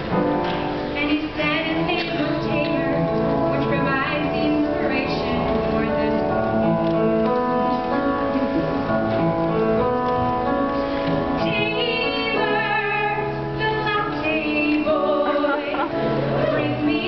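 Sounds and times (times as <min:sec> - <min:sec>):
piano accompaniment: 0:00.0 - 0:17.0
woman singing with vibrato: 0:11.4 - 0:17.0.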